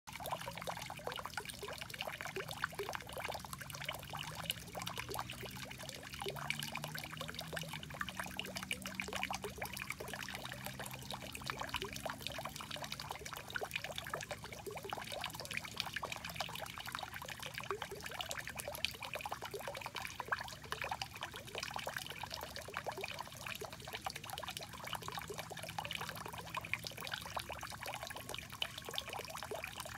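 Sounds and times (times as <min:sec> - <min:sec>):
fountain water splashing into pool: 0:00.1 - 0:29.9.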